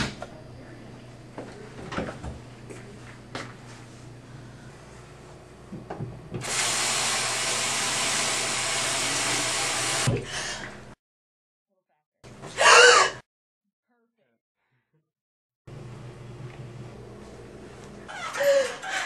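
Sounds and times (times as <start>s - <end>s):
water running into sink: 6.4s - 10.2s.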